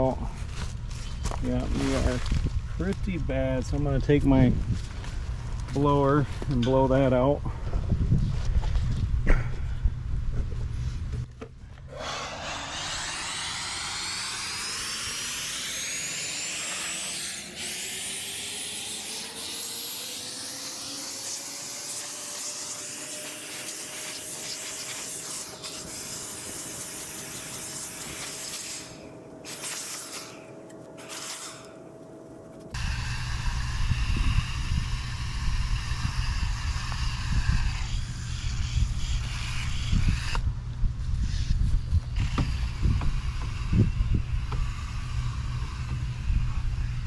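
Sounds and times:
electric blower motor whine: 10.4s - 47.0s.

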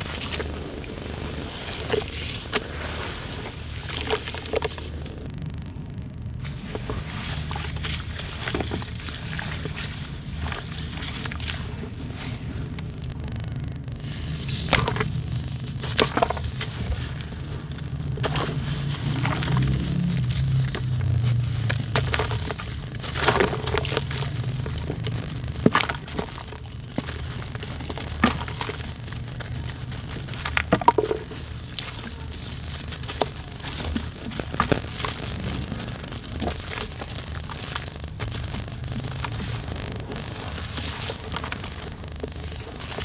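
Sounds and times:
cement chunk cracking and crunching: 0.0s - 5.4s, 14.0s - 43.0s
low hum: 0.0s - 43.0s
grit dropping into water: 14.3s - 43.0s.

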